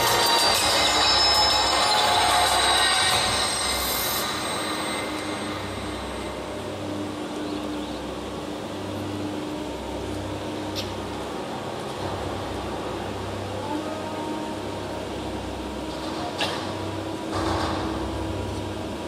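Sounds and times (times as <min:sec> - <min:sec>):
shrill metallic screeching: 0:00.0 - 0:06.4
low drone with hum: 0:00.0 - 0:19.0.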